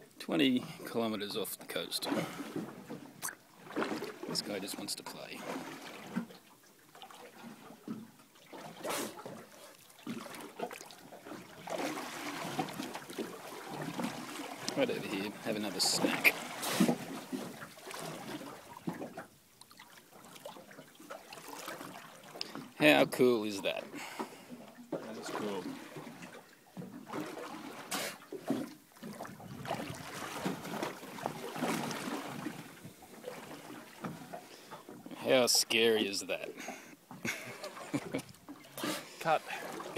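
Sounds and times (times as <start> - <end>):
water splashing and trickling: 0.0 - 39.9.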